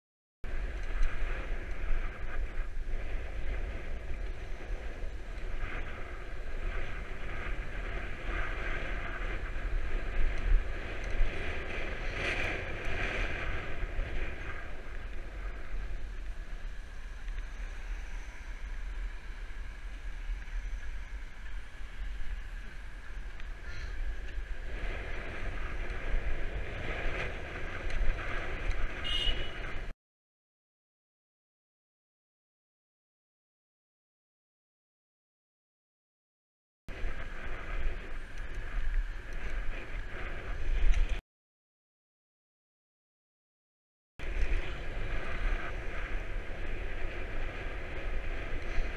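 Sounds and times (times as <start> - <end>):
road noise: 0.4 - 29.9, 36.9 - 41.2, 44.2 - 48.9
wind buffeting microphone: 0.4 - 29.9, 36.9 - 41.2, 44.2 - 48.9.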